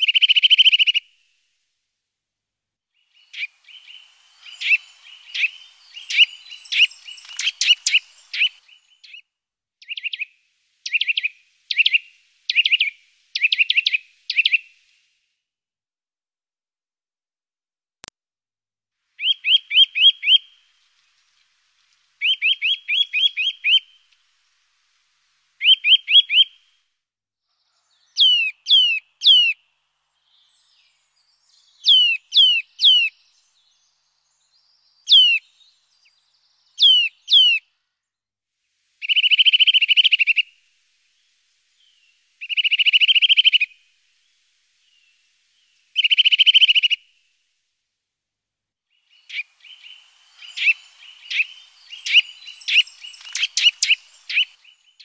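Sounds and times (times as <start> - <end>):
songbird calling: 0.0 - 1.2, 3.0 - 14.9, 19.2 - 24.2, 25.6 - 26.7, 27.6 - 37.8, 39.0 - 47.2, 48.9 - 55.0.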